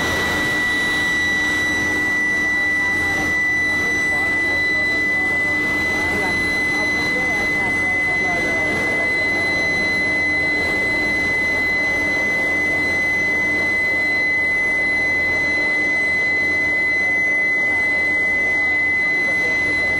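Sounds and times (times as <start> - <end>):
machinery roar: 0.0 - 12.9
high-pitched whine: 0.0 - 19.9.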